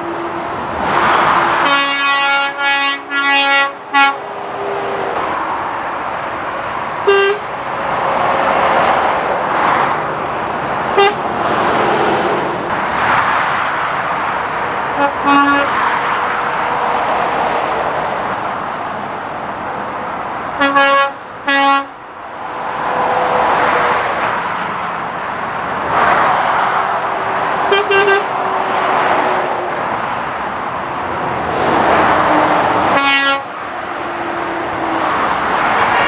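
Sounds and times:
traffic rushing past: 0:00.0 - 0:36.0
short horn toots: 0:27.7 - 0:28.3.

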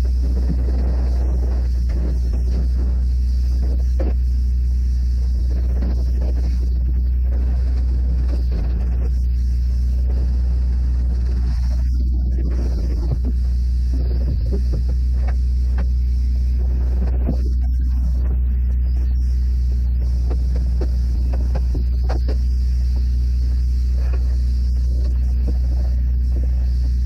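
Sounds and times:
machine low drone: 0:00.0 - 0:27.0.

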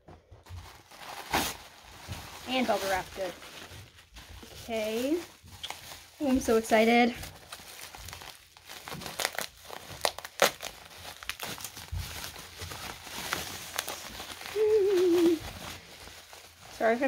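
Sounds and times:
bubble wrap crinkling: 0:00.1 - 0:17.0
person vocal sound: 0:14.5 - 0:15.4.

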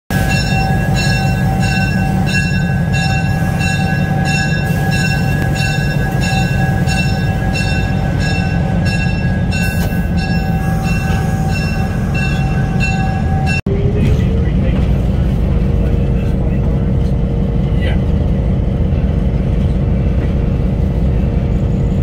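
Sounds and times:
locomotive bell ringing: 0:00.1 - 0:13.8
locomotive diesel engine rumble: 0:00.1 - 0:22.0.

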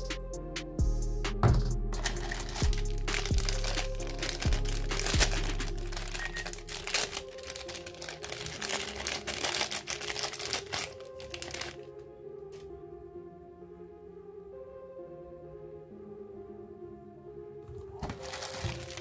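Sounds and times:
background music: 0:00.0 - 0:19.0
plastic packaging crinkling: 0:02.0 - 0:12.6, 0:17.9 - 0:19.0.

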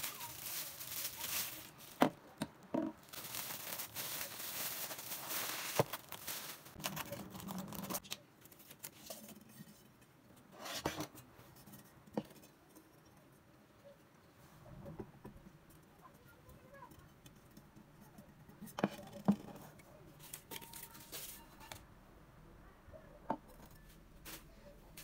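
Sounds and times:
crinkly rustling of wrapping: 0:00.0 - 0:09.3, 0:20.2 - 0:21.8.

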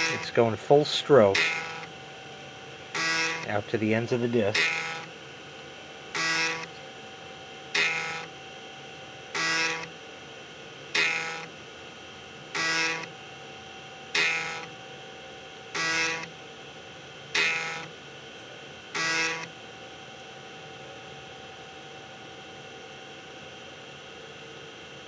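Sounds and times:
floppy drive stepper motor buzzing: 0:00.0 - 0:19.7.

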